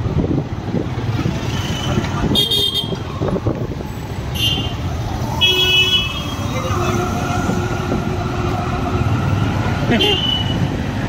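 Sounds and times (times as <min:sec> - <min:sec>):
road traffic: 0:00.0 - 0:11.0
car horns honking: 0:01.8 - 0:03.0, 0:04.3 - 0:04.8, 0:05.4 - 0:07.3.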